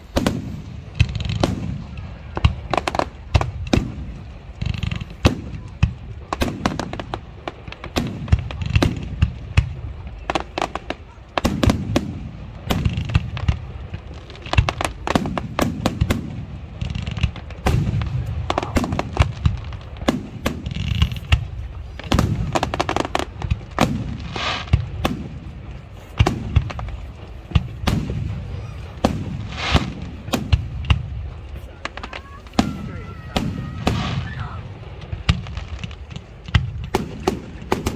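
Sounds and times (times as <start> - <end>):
firework crackling: 0.0 - 37.9
firework shells bursting: 10.6 - 37.9.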